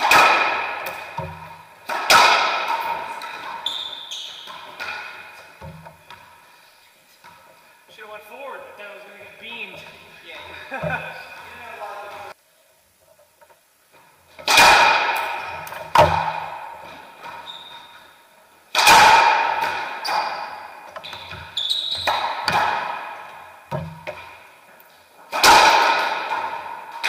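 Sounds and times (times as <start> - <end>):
racquetball smacks echoing: 0.0 - 6.4, 14.4 - 18.1, 18.7 - 24.6, 25.3 - 27.0
sneaker squeaks on hardwood: 3.0 - 5.4, 16.9 - 18.2, 19.9 - 22.6.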